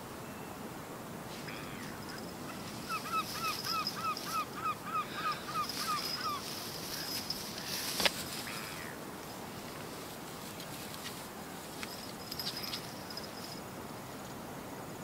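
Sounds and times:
stilt yapping calls: 0:01.4 - 0:09.0.

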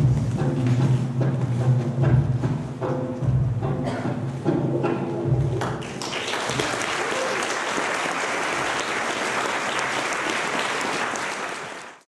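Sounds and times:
many hands clapping: 0:05.6 - 0:12.0.

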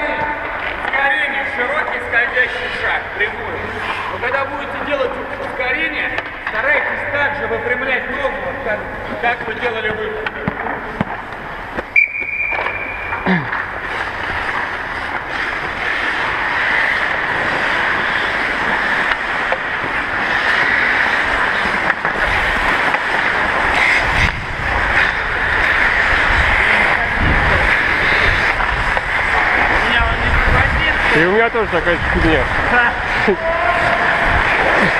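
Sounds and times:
ice skate blades scraping: 0:00.0 - 0:34.9
whistle blowing: 0:11.9 - 0:13.2
wind rushing on microphone: 0:24.0 - 0:25.0, 0:26.0 - 0:29.2, 0:29.8 - 0:33.1.

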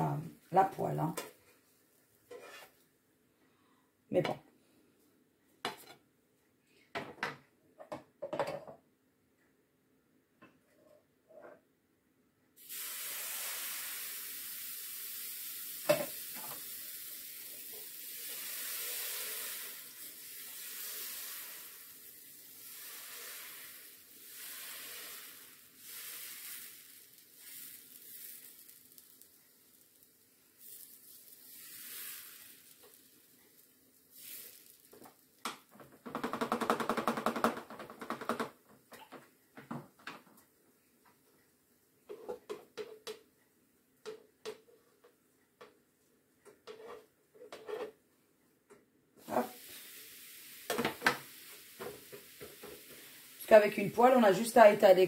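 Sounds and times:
batter sizzling on hot plate: 0:12.6 - 0:35.8, 0:49.2 - 0:55.0.

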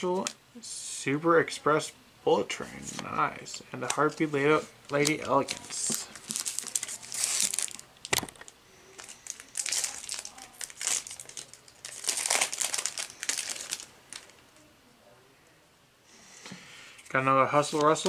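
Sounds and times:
foil wrapper crinkling: 0:04.9 - 0:14.4.

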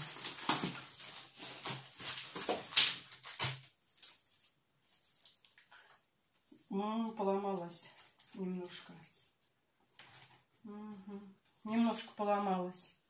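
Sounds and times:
packing rustling: 0:00.0 - 0:06.5
wicker basket creaking: 0:00.0 - 0:12.6.

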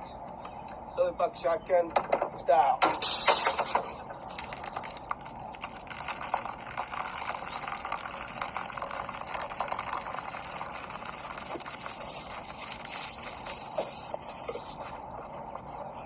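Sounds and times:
liquid spattering: 0:02.8 - 0:14.9
beer gushing and fizzing: 0:02.8 - 0:16.0.

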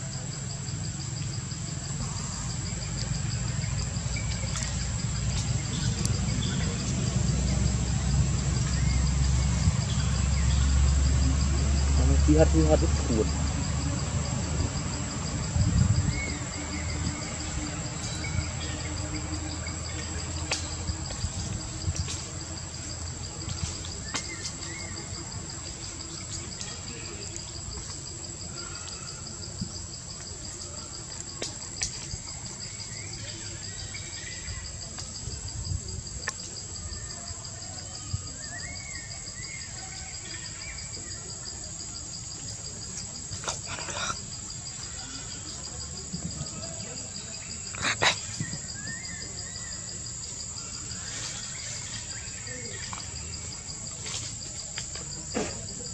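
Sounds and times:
insect high whine: 0:00.0 - 0:31.2.

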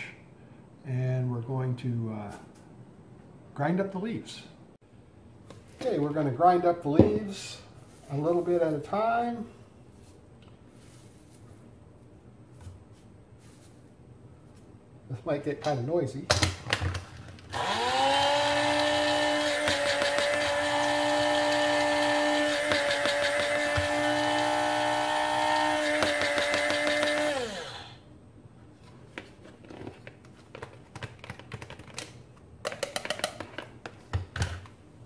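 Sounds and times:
electric coffee grinder running: 0:17.5 - 0:28.0.

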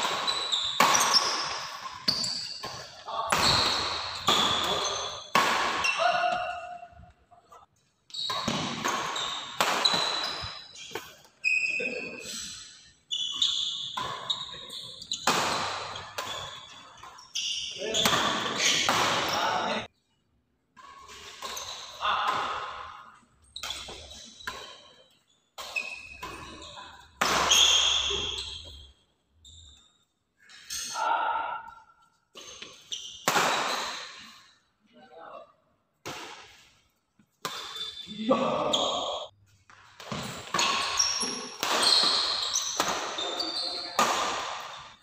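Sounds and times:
shoes squeaking on court: 0:00.0 - 0:06.7, 0:07.4 - 0:19.8, 0:20.8 - 0:22.0, 0:23.1 - 0:31.0, 0:32.3 - 0:34.3, 0:36.5 - 0:45.0
racket hitting shuttlecock: 0:00.0 - 0:06.8, 0:08.3 - 0:11.3, 0:13.8 - 0:17.2, 0:18.0 - 0:19.4, 0:25.6 - 0:26.6, 0:27.2 - 0:28.6, 0:32.4 - 0:34.3, 0:36.0 - 0:36.7, 0:39.7 - 0:45.0.

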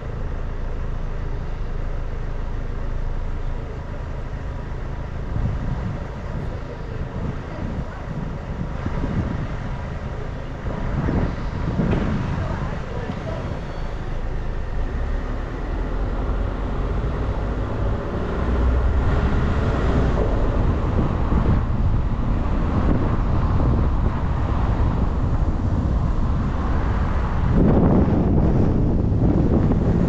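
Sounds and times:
bus engine and road noise: 0:00.0 - 0:30.0.

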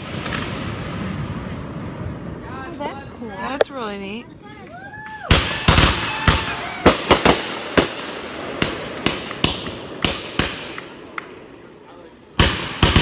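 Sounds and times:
fireworks bangs: 0:00.0 - 0:13.0.

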